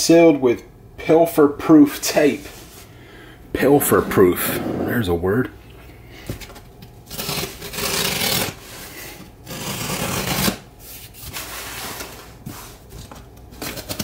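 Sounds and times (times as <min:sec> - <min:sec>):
cardboard flaps scraping: 0:03.6 - 0:05.2.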